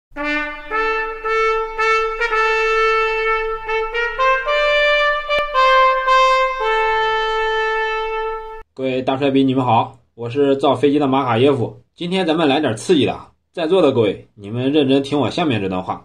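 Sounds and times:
trumpet melody: 0.1s - 8.7s.

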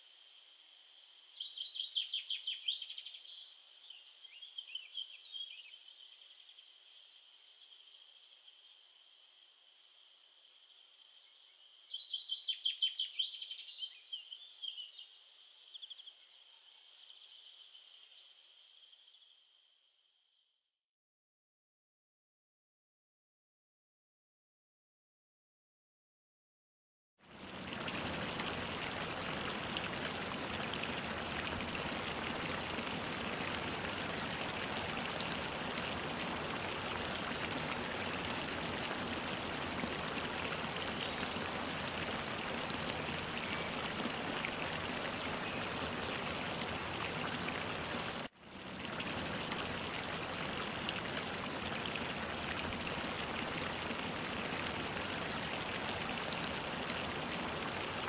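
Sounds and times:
running splashing water: 27.2s - 58.0s.

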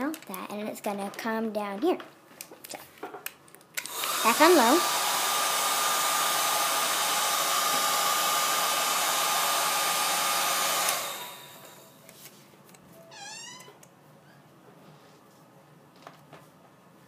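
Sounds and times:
hair dryer running: 3.8s - 12.0s.

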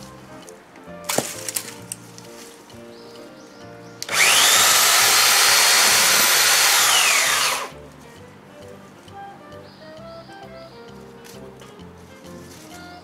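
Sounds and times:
electric chainsaw motor whine: 4.0s - 7.7s.

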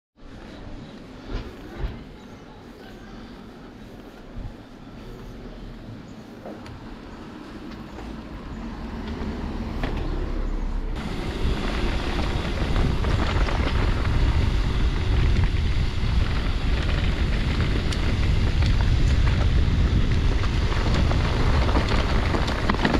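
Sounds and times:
tyre and trail noise: 0.2s - 22.9s
wind rumbling on microphone: 4.2s - 9.6s, 10.9s - 22.9s
bike rattles and clicks: 10.9s - 22.9s.

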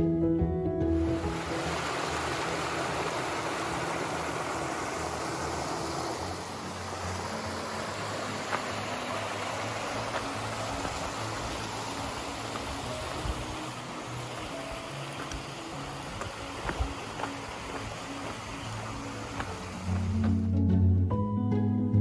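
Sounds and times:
waterfall rushing over rocks: 1.0s - 20.5s.

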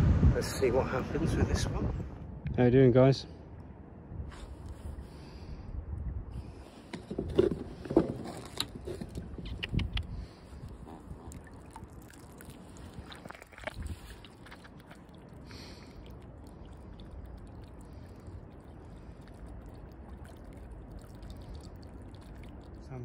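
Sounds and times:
low rumble: 0.0s - 2.8s.

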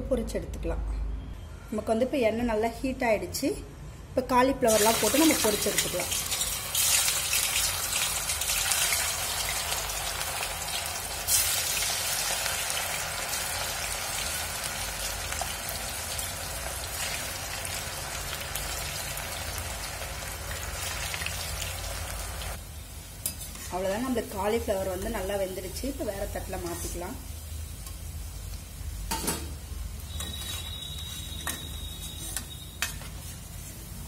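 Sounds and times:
food deep-frying in oil: 4.7s - 34.0s.

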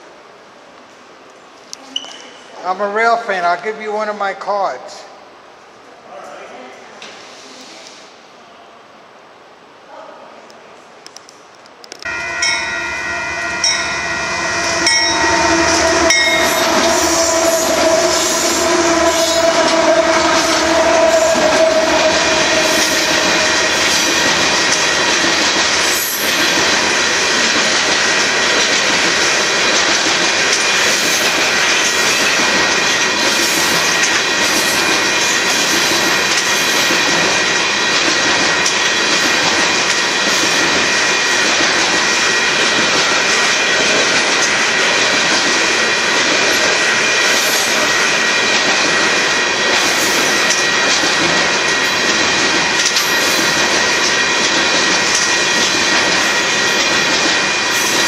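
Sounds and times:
freight train wheels rumbling: 11.8s - 58.0s
high-pitched ringing tones: 12.1s - 19.1s.

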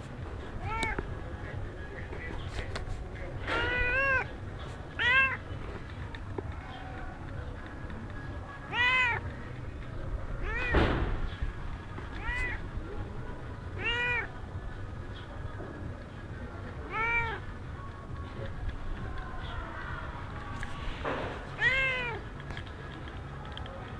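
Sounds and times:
cat meowing: 0.6s - 1.0s, 3.5s - 4.3s, 4.9s - 5.4s, 8.7s - 9.2s, 10.4s - 10.8s, 12.2s - 12.6s, 13.8s - 14.3s, 16.9s - 17.4s, 21.6s - 22.2s
brief thump: 10.7s - 11.2s.

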